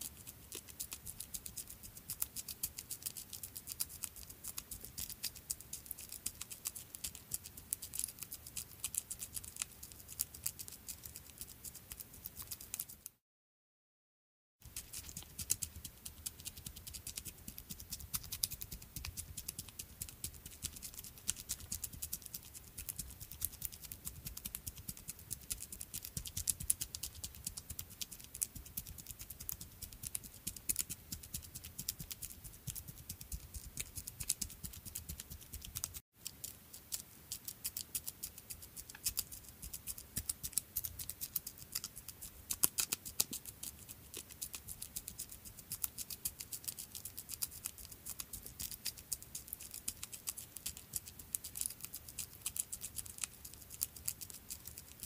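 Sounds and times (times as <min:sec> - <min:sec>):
small creature pattering footsteps: 0:14.7 - 0:55.0.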